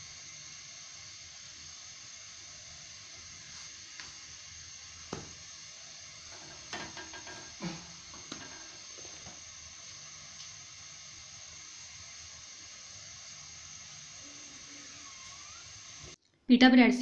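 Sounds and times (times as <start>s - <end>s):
soft hiss: 0.0s - 16.2s
bread knocking on griddle: 5.0s - 5.5s, 6.3s - 9.4s.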